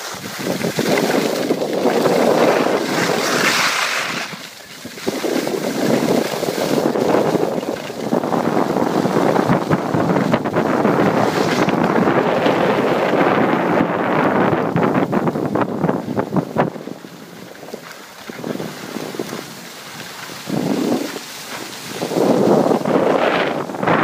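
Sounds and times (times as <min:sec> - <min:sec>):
skis scraping on snow: 0:00.0 - 0:24.0
wind rushing over microphone: 0:00.0 - 0:24.0.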